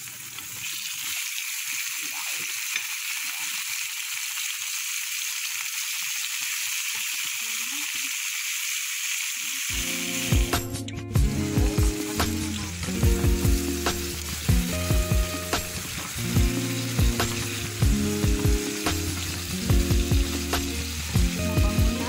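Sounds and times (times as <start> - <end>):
chicken sizzling in oil: 0.0 - 22.0
background music: 9.7 - 22.0.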